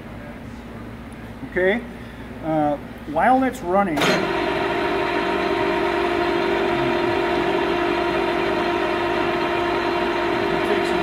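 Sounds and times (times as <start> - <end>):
lathe running: 4.0 - 11.0.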